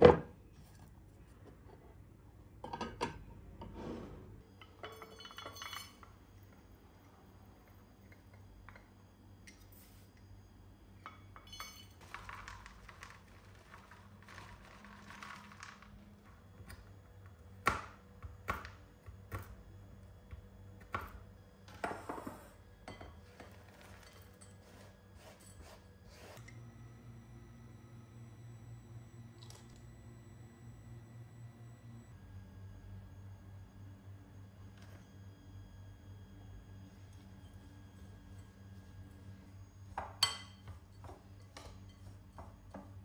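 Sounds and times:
dishes clinking and knocking: 2.6 - 3.8, 4.6 - 6.2.

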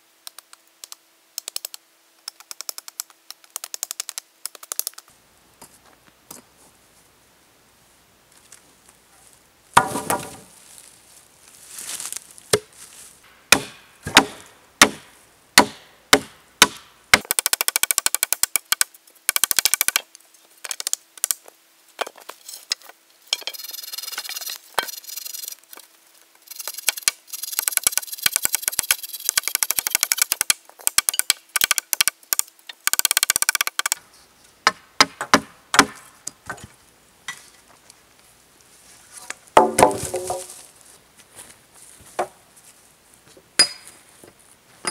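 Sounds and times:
axe chopping into log: 9.8 - 10.4, 13.5 - 17.3, 34.7 - 36.0, 39.6 - 40.6.

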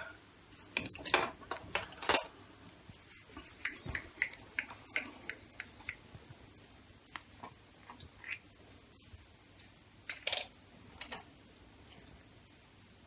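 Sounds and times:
plastic moulds clicking and knocking: 10.1 - 11.2.

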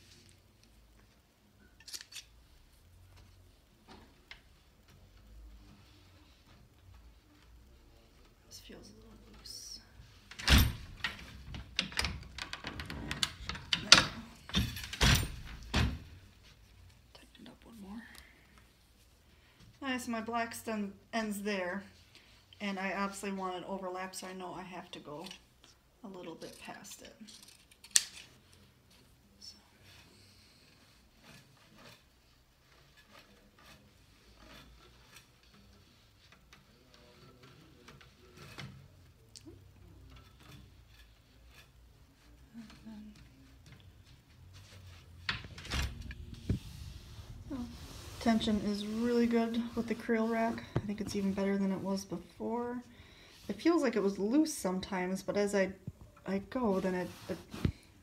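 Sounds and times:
small clicks and rattles: 10.5 - 15.1
fabric rustling through loom: 25.1 - 58.0
light ticks of loom: 29.8 - 44.3.

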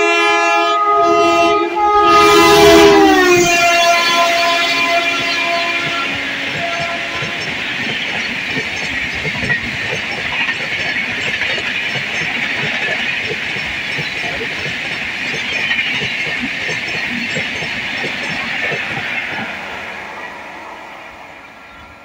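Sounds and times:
steel wheels hissing on rail: 2.6 - 22.0
wheels clacking over rail joints: 3.2 - 20.7.

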